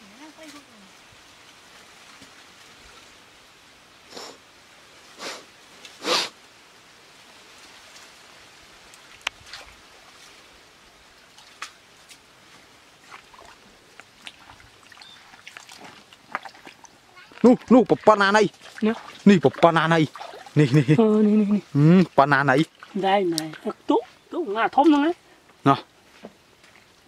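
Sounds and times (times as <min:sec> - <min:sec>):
muddy water splashing: 0:09.0 - 0:25.4
water dripping: 0:13.0 - 0:25.7.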